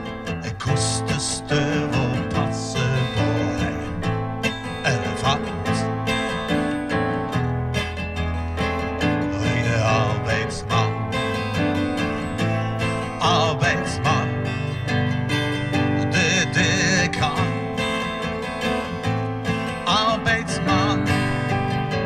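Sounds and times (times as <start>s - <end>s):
acoustic guitar strumming: 0.0s - 22.0s
electric keyboard: 0.0s - 22.0s.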